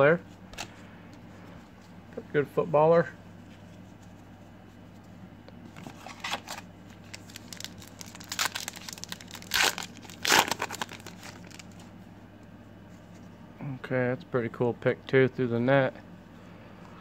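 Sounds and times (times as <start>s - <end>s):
foil wrapper crinkling and tearing: 6.0s - 11.8s.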